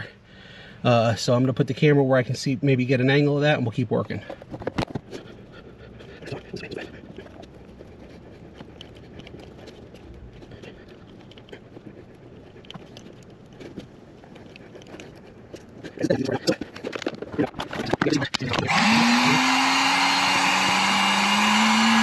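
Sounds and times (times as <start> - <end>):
handling knocks and rustles: 4.1 - 5.4, 6.2 - 18.7
wire twisting rustles and clicks: 4.1 - 5.5, 6.1 - 18.7.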